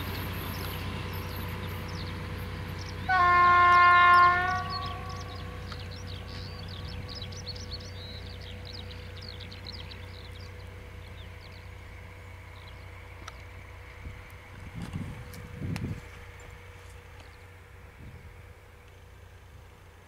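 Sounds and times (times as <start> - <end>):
diesel train rumble: 0.0 - 20.0
small birds chirping: 0.1 - 3.1, 3.7 - 13.8.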